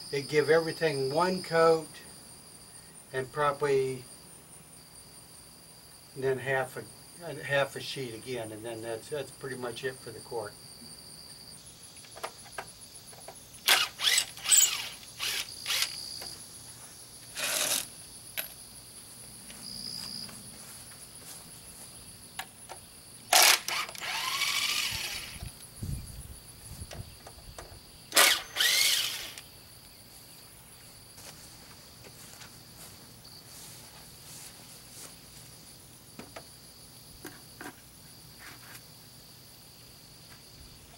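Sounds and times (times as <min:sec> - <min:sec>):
crickets chirring: 0:00.0 - 0:40.9
power drill spinning: 0:13.6 - 0:16.4, 0:17.2 - 0:17.9, 0:23.3 - 0:25.6, 0:28.1 - 0:29.4.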